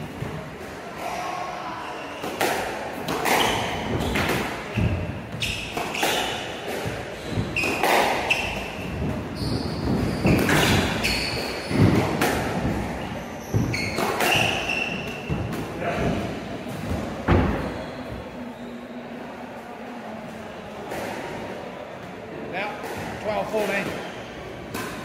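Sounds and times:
squash ball hitting rackets and walls: 0:02.1 - 0:18.2, 0:22.6 - 0:25.0
shoes squeaking on wooden floor: 0:03.2 - 0:15.5.

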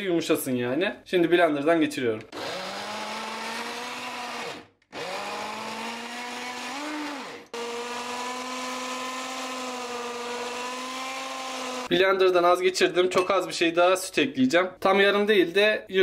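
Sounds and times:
mini blender motor whining: 0:02.3 - 0:11.9.

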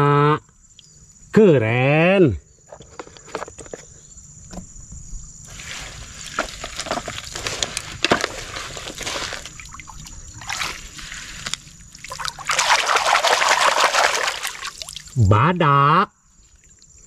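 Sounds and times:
wet gravel scraped from plastic: 0:05.5 - 0:12.0
hand splashing in water: 0:12.0 - 0:15.2.

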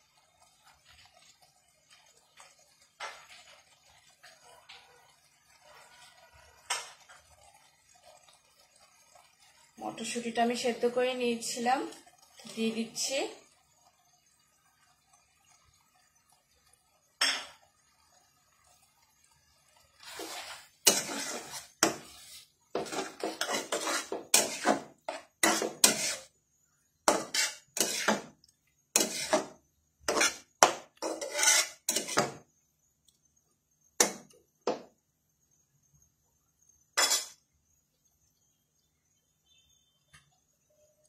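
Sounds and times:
metal spoon scraping a metal pan: 0:20.0 - 0:26.3, 0:27.1 - 0:28.3, 0:28.9 - 0:32.4, 0:37.0 - 0:37.4.

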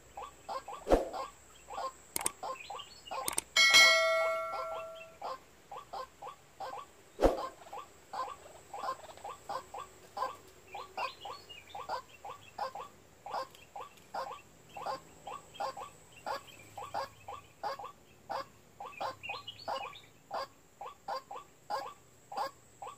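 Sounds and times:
waterhen calling: 0:00.0 - 0:06.1.

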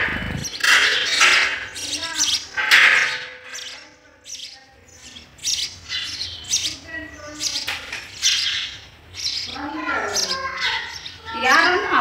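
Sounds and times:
sparrows chirping: 0:00.0 - 0:12.0.

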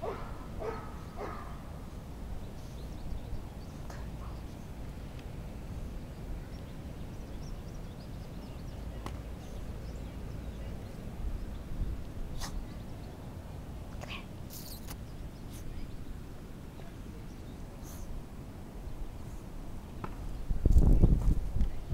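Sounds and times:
wind rumble on microphone: 0:00.0 - 0:13.9, 0:18.9 - 0:21.9
faint bird chirps: 0:14.0 - 0:16.0.

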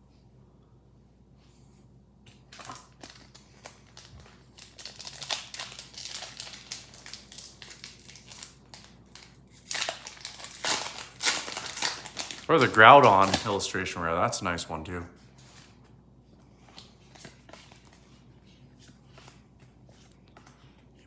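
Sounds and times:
foil wrapper crinkling: 0:02.4 - 0:14.1.

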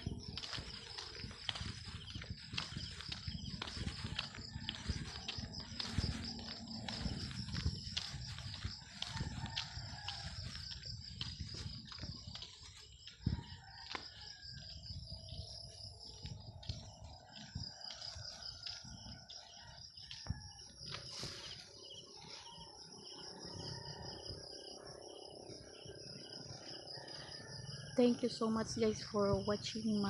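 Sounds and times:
low wind rumble: 0:00.0 - 0:28.0
insects chirring: 0:00.0 - 0:30.0.

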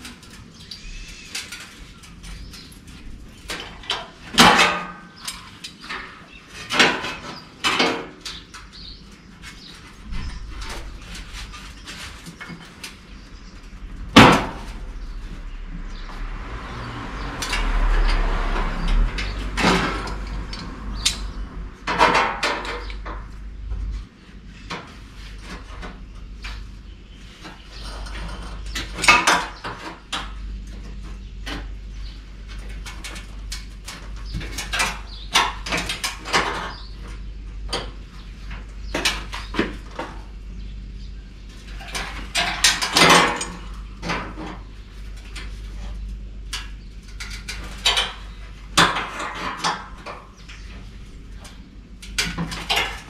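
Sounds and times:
metallic clicks and clanks: 0:17.4 - 0:23.4.

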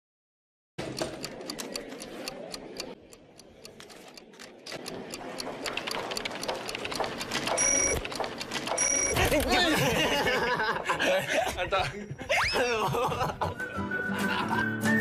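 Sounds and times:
rapid clock ticking: 0:00.8 - 0:09.2.

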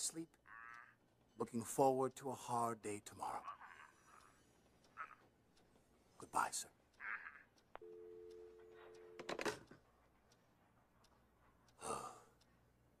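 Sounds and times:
two-note telephone line tone: 0:07.8 - 0:09.5
telephone clicks: 0:07.8 - 0:09.8.

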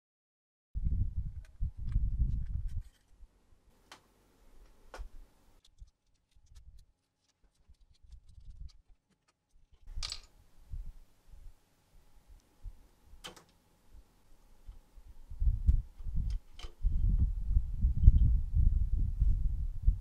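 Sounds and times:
cable connectors clicking: 0:13.2 - 0:13.6.

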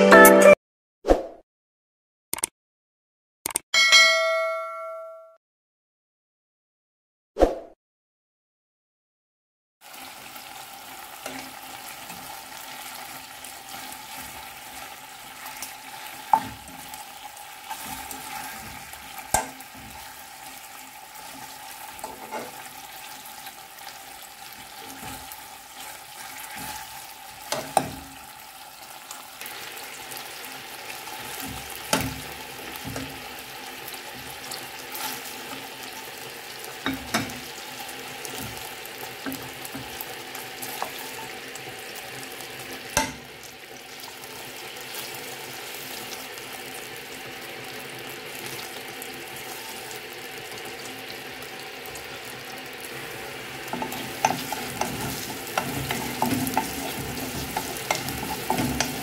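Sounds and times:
chicken sizzling in a pan: 0:09.8 - 0:59.0
metal fork scraping a pan: 0:17.7 - 0:20.2, 0:21.2 - 0:22.7, 0:24.8 - 0:28.0, 0:53.7 - 0:59.0.

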